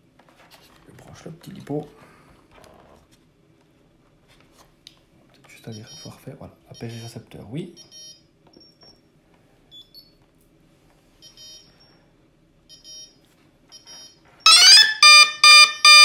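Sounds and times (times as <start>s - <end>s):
rising electronic alarm tones: 14.5s - 16.0s.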